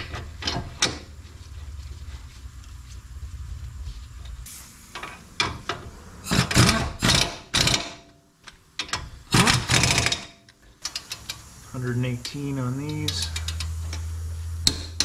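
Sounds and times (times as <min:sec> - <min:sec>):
air ratchet bursts: 0:09.3 - 0:15.0.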